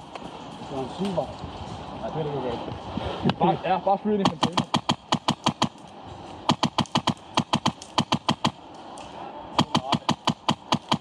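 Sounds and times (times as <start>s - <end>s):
airsoft gun firing: 4.2s - 5.8s, 6.4s - 8.6s, 9.6s - 11.0s.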